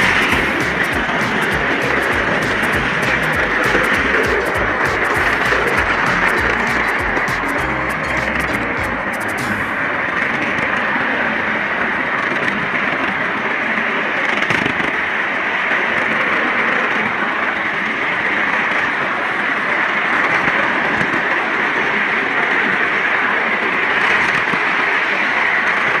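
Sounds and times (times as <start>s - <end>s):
miniature train rushing noise: 0.0s - 26.0s.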